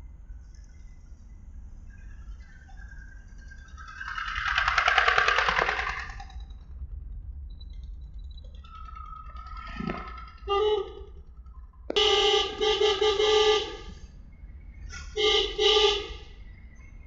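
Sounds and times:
low road and engine rumble: 0.0s - 17.0s
vehicle horn honking: 10.5s - 11.1s, 11.9s - 14.0s, 15.1s - 16.4s.

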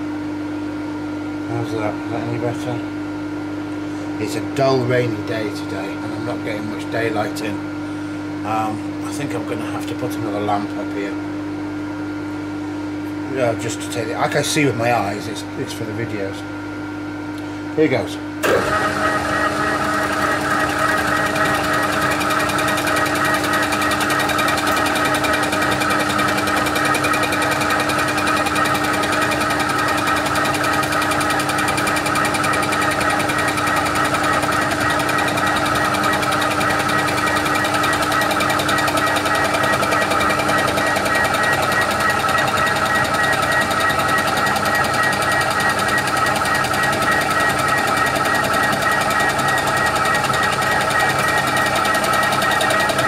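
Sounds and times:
milling machine whine: 0.0s - 12.2s, 13.1s - 53.0s.

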